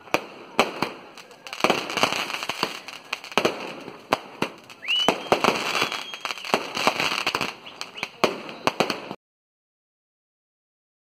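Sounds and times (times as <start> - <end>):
firecrackers bursting: 0.0 - 9.2
high whistle: 4.8 - 6.6.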